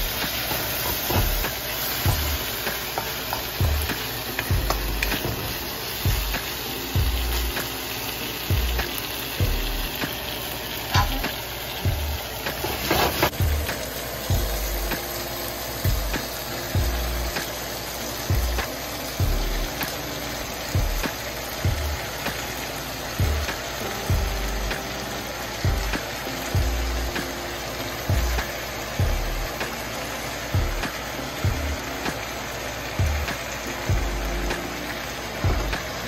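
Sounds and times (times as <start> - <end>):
background music beat: 0.0 - 36.0
vegetables sizzling in wok: 0.0 - 36.0
wooden spatula scraping wok: 12.5 - 13.4.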